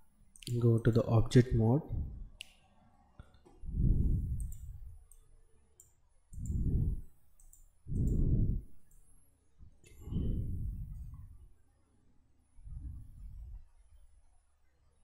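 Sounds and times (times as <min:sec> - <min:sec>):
low muffled rumbles: 0:01.5 - 0:02.4, 0:03.6 - 0:05.1, 0:06.4 - 0:07.1, 0:07.9 - 0:08.8, 0:09.6 - 0:11.4, 0:12.6 - 0:13.7
computer mouse clicks: 0:03.3 - 0:09.1.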